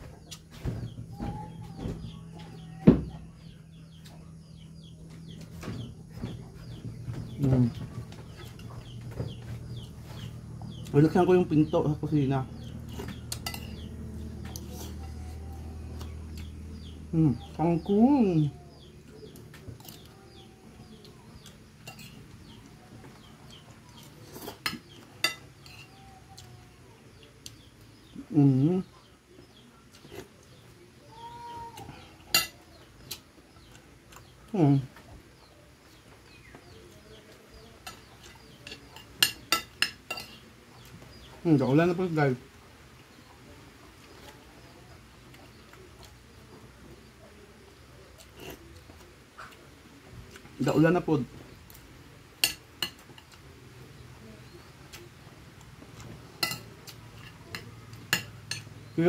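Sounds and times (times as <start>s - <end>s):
cutlery clinking on a plate: 13.0s - 13.8s, 21.8s - 22.2s, 24.3s - 25.9s, 37.8s - 40.4s, 52.4s - 53.4s, 56.4s - 58.7s.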